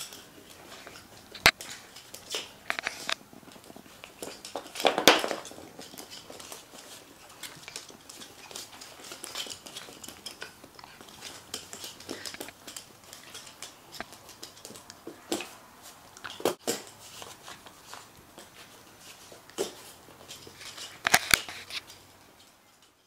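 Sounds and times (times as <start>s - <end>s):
dog claws clicking on hardwood floor: 0.0s - 23.0s.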